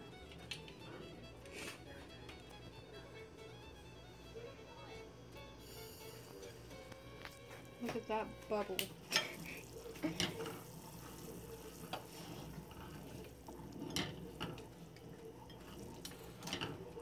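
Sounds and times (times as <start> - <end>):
syrup bubbling in a saucepan: 8.6 - 17.0
spatula stirring: 9.0 - 17.0.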